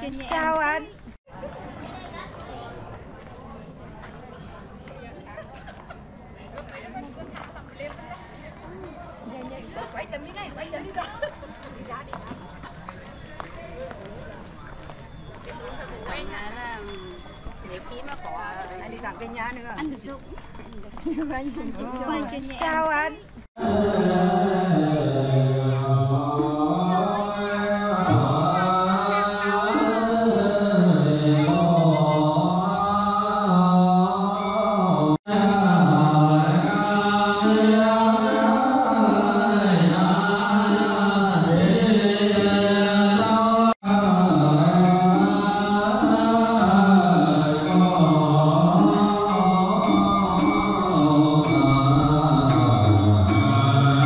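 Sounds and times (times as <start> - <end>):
melodic sung chant: 23.6 - 54.0.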